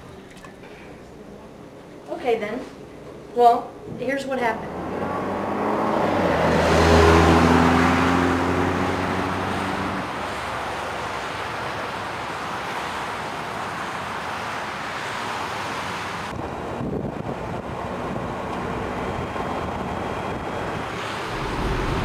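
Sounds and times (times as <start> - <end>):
road and wind noise: 3.8 - 22.0
car engine: 4.4 - 10.6, 20.9 - 22.0.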